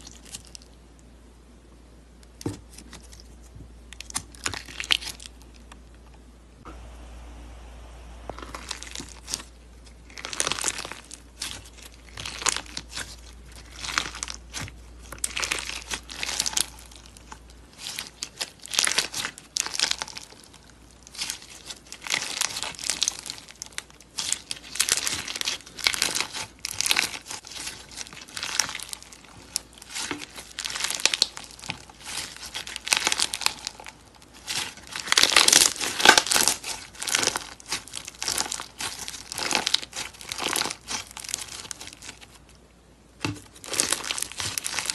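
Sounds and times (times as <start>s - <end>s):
bead slime crackling when squeezed: 8.3s - 42.4s, 43.5s - 44.9s.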